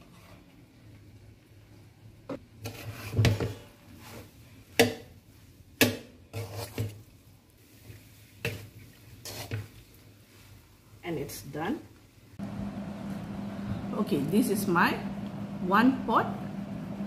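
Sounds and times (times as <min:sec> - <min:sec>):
metal spatula scraping pan: 0:02.6 - 0:04.4, 0:06.2 - 0:07.1, 0:07.8 - 0:09.8.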